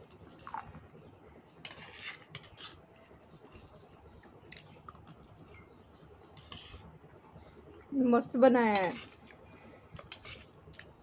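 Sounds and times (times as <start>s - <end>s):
spoons scraping metal plates: 1.6s - 2.8s, 8.6s - 9.3s, 10.0s - 10.5s.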